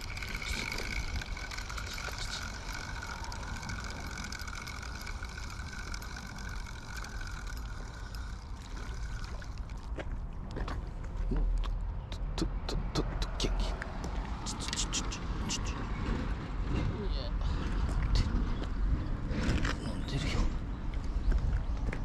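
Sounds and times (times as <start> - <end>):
fishing reel gears whining: 0.0 - 10.0.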